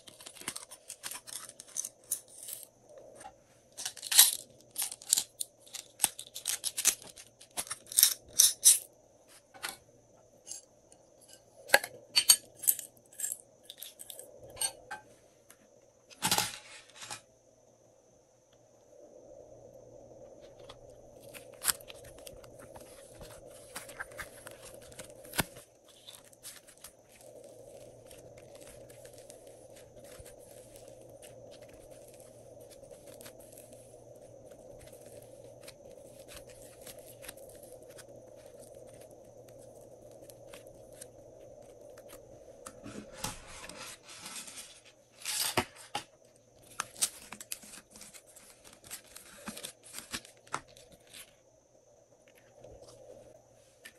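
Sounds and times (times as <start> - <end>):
clay squishing: 20.6 - 43.8.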